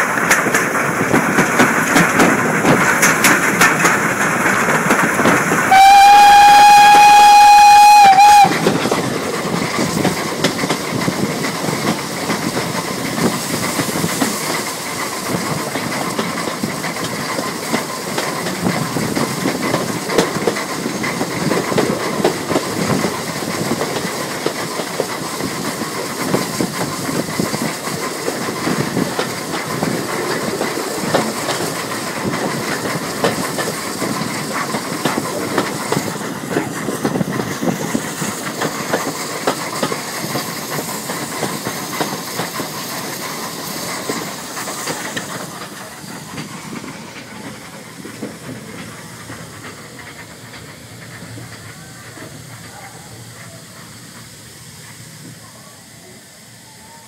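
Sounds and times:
train wheels clattering: 0.0 - 55.3
steam hissing: 0.0 - 57.0.

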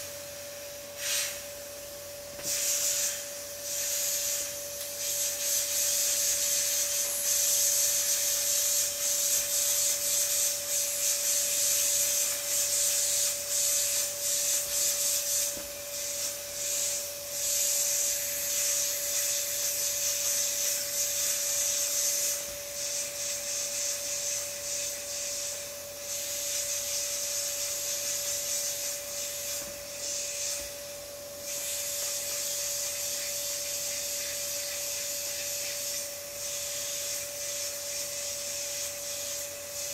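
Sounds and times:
air hissing out of a valve: 0.0 - 1.6, 2.3 - 39.9.

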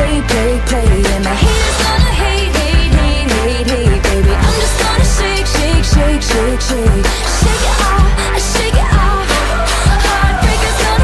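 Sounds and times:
pop music with drum beat: 0.0 - 11.0.

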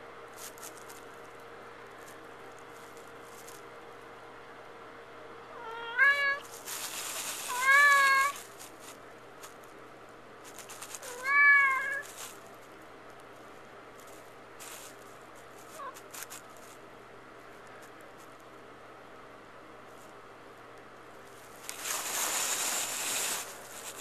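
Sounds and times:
cat meowing: 5.5 - 6.5, 7.5 - 8.4, 11.0 - 12.1.

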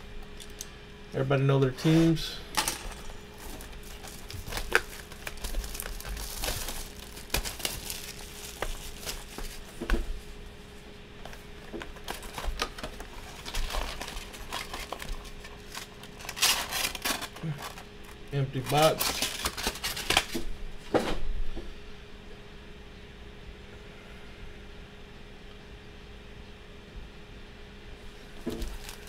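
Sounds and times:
cardboard clicks and rustles: 2.8 - 10.2, 11.2 - 20.4, 28.4 - 29.0
plastic wrap and foil crinkling: 2.8 - 20.4, 28.3 - 29.0.

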